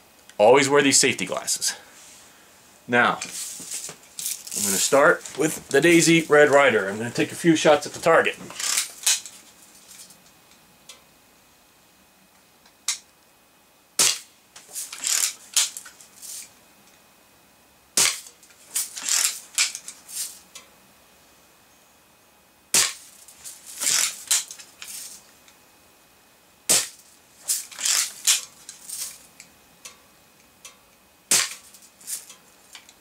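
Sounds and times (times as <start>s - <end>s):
bb gun shots: 31.3s - 31.6s.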